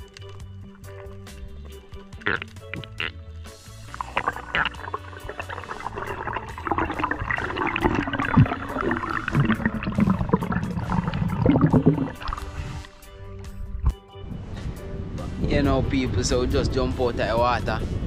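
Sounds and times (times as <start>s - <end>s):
clicks and crackles: 0.0s - 3.2s
underwater gurgling rushing water: 3.9s - 12.9s.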